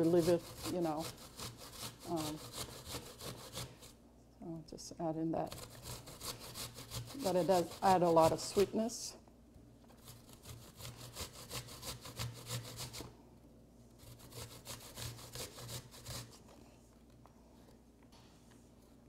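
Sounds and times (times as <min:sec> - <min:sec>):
apple rasping on metal grater: 0:00.0 - 0:04.0, 0:05.4 - 0:09.0, 0:09.9 - 0:13.1, 0:14.0 - 0:16.4.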